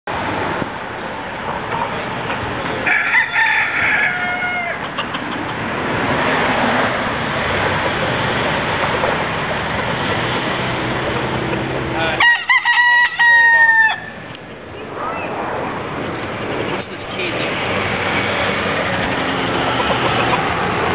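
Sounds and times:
steady background noise: 0.1 - 20.9
rooster crowing: 2.8 - 5.0, 12.2 - 14.3.

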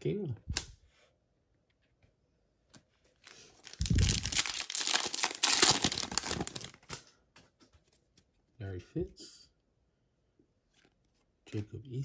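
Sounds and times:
foil wrapper tearing and crinkling: 3.6 - 7.0.

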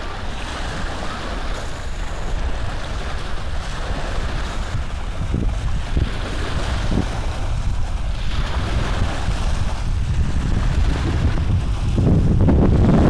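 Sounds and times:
microphone handling noise: 5.2 - 13.0.

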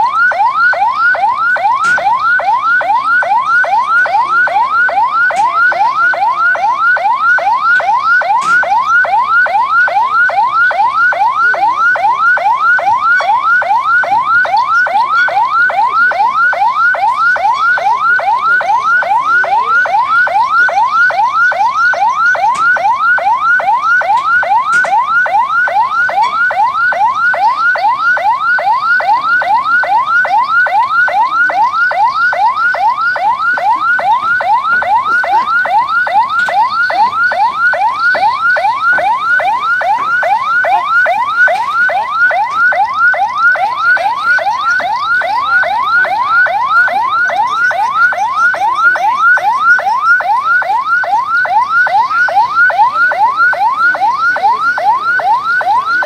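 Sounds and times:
electronic siren yelping: 0.0 - 56.0.

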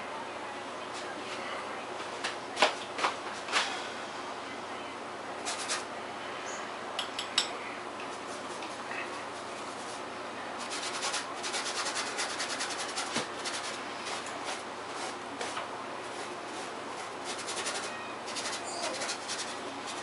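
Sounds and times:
paintbrush scratchy strokes: 16.1 - 20.0.

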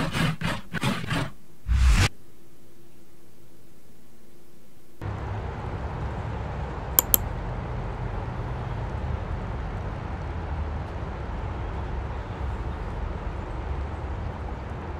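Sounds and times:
outdoor background rumble: 4.8 - 14.9
computer mouse clicks: 7.0 - 7.2.

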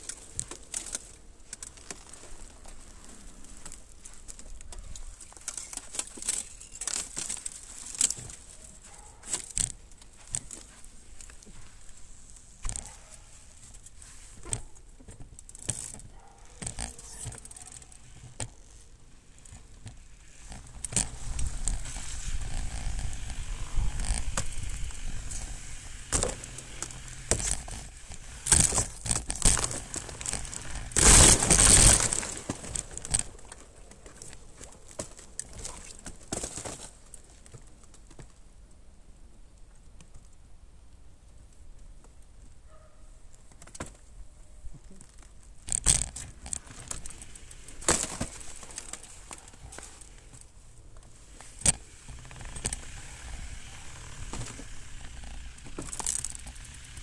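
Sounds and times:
bike rattling and clicking: 0.0 - 11.7, 12.4 - 37.1, 45.1 - 57.0
tyres crunching on snow: 19.9 - 33.3.

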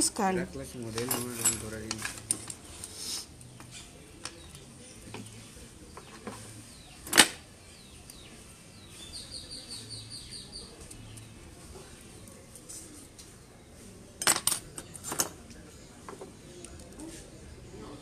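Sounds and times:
bird chirping: 3.5 - 11.4.

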